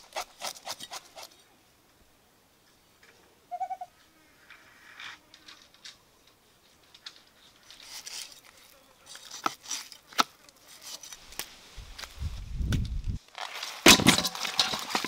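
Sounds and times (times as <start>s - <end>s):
cleaver scraping fish scales: 0.0s - 1.4s, 7.2s - 11.6s.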